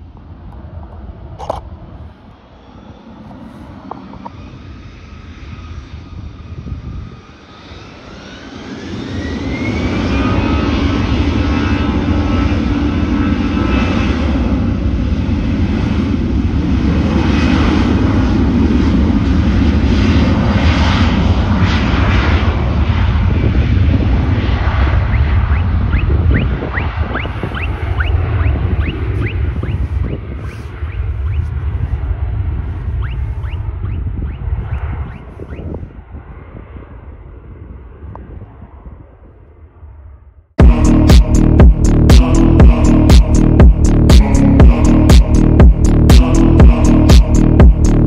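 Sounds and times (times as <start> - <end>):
jet takeoff thrust roar: 0.0 - 48.0
jet engines spooling up: 0.1 - 36.1, 40.6 - 48.0.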